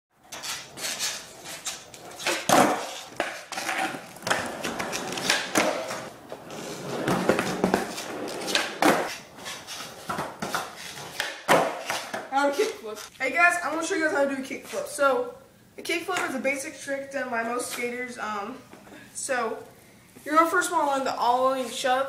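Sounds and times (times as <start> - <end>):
skateboard wheels rolling on concrete: 0.2 - 13.1
skateboard tail popping and landing: 2.2 - 9.2, 10.0 - 12.2.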